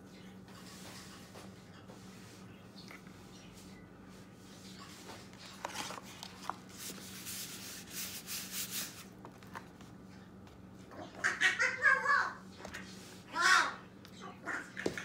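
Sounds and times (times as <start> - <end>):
hands rubbing paper: 5.6 - 9.2.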